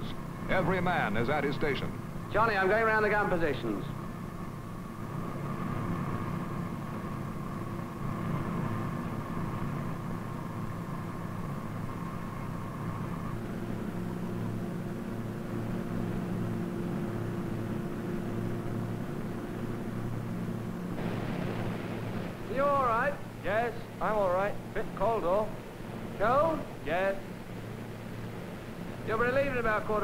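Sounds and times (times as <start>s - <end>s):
aircraft engines humming: 0.0s - 30.0s.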